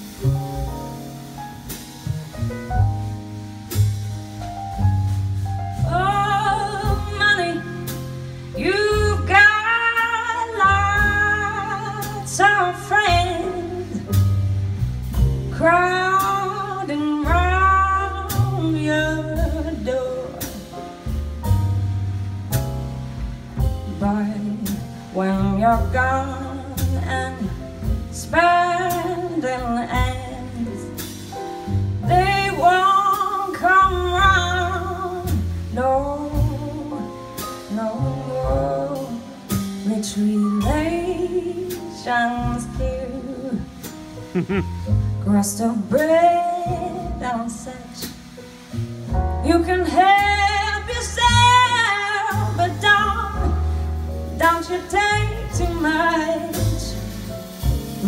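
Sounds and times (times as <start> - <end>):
drum kit cymbals: 0.0 - 58.0
piano: 0.0 - 58.0
plucked double bass: 0.0 - 58.0
woman singing: 5.8 - 7.9, 8.6 - 14.1, 15.5 - 20.6, 23.9 - 31.0, 32.1 - 43.8, 45.2 - 48.3, 49.4 - 53.6, 54.4 - 57.3.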